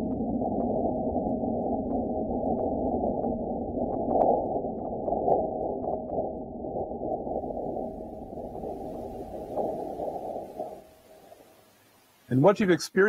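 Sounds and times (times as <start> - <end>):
rumbling hiss: 7.4 - 13.0.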